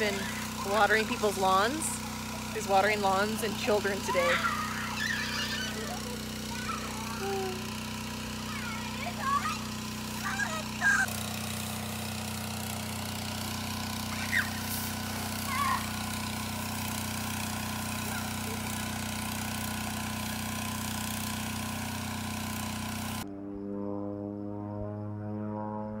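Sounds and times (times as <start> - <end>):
hose spraying water jet: 0.0 - 23.2
water pump engine running: 0.0 - 23.3
high voices calling out: 3.9 - 7.8, 8.4 - 11.1.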